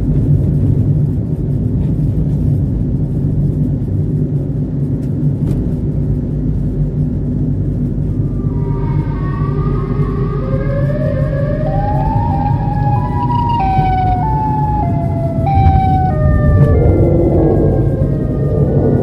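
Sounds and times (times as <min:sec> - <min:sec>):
car driving rumble: 0:00.0 - 0:19.0
siren rising and falling: 0:08.0 - 0:19.0.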